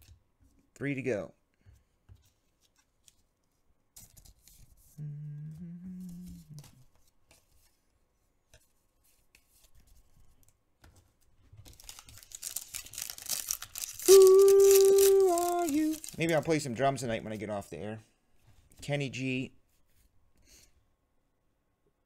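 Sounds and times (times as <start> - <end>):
man humming: 5.0 - 6.9, 14.0 - 16.0
cards rustling and clicking: 10.9 - 16.6.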